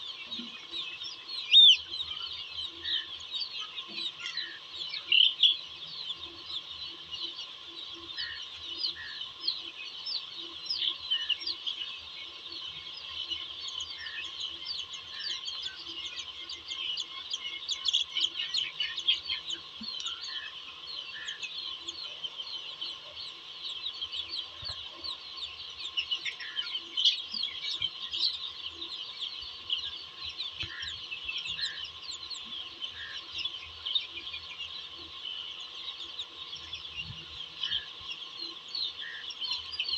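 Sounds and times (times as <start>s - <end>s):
chicks peeping: 0.0s - 39.9s
lower bird calls: 8.0s - 11.9s, 12.8s - 39.9s.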